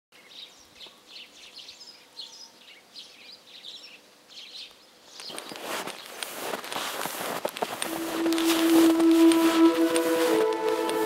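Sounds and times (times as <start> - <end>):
small birds chirping: 0.1 - 7.8.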